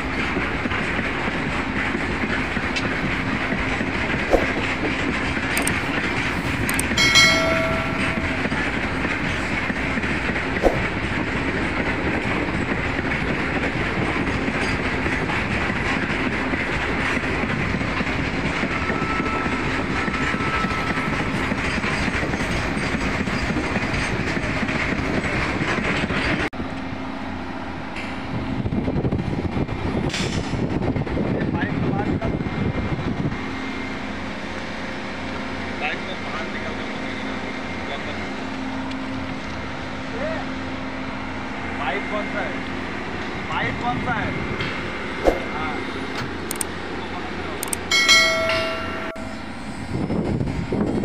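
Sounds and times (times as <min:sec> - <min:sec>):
sharp equipment clicks: 0:05.5 - 0:05.9, 0:06.6 - 0:07.0, 0:46.5 - 0:46.7, 0:47.6 - 0:47.9.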